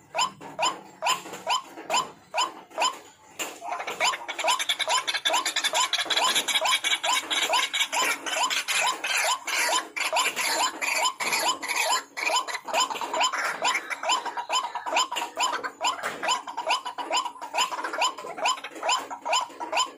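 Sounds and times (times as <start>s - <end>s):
bird harsh croaking calls: 0.0s - 19.9s.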